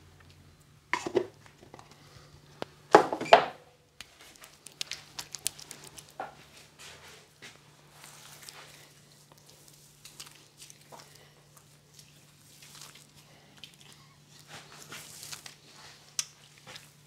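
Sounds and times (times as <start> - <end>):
items clattering on worktop: 1.0 - 2.0, 2.9 - 3.6.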